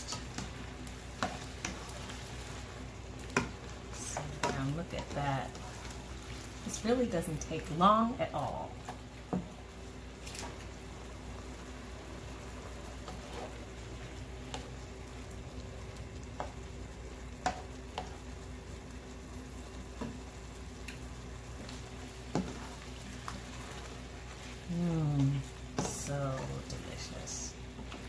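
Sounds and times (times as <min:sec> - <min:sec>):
food sizzling in a pan: 0:00.0 - 0:28.0.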